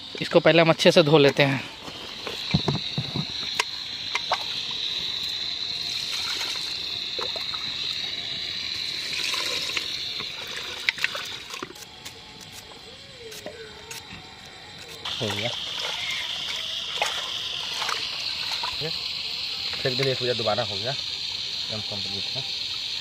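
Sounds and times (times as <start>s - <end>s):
running water: 5.7s - 11.8s, 15.1s - 21.0s.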